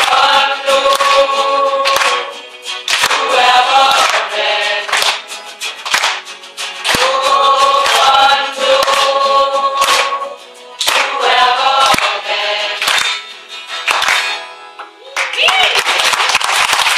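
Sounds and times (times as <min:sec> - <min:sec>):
group of women singing: 0:00.0 - 0:05.2, 0:06.8 - 0:13.1
hand claps: 0:00.0 - 0:16.9.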